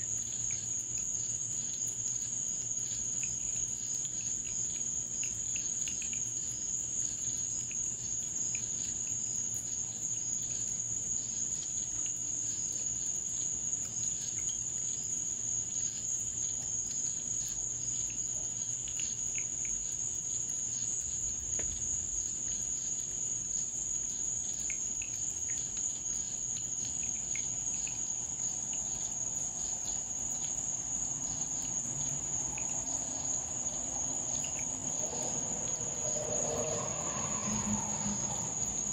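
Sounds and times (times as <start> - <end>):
faint ticks: 0.0 - 33.4
crickets chirring: 0.0 - 38.9.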